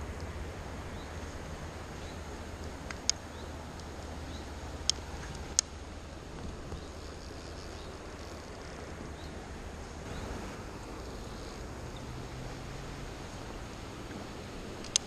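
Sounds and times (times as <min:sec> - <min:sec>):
river water rushing over stones: 0:08.0 - 0:15.0.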